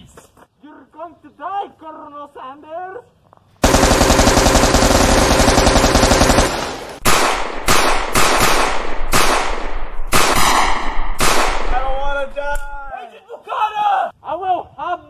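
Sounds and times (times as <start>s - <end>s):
automatic gunfire burst: 3.6s - 11.8s
single gunshots: 6.5s - 12.3s.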